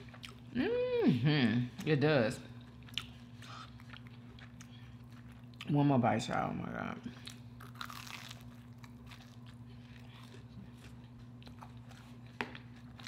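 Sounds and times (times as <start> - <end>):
close-up chewing: 2.6 - 5.7, 7.2 - 13.0
crunchy bite: 7.6 - 9.4.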